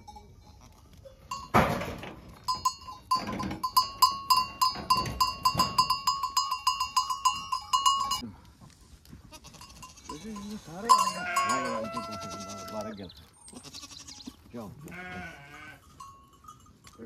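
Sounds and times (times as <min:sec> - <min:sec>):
small metal bell clanking: 0:00.0 - 0:08.2, 0:09.6 - 0:12.5, 0:15.6 - 0:17.0
goats bleating: 0:09.3 - 0:15.9.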